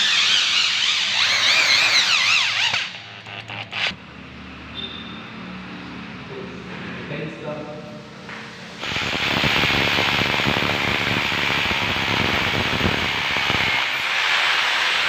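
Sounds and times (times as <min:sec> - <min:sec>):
hammer drill grinding: 0:00.0 - 0:04.0, 0:08.8 - 0:15.0.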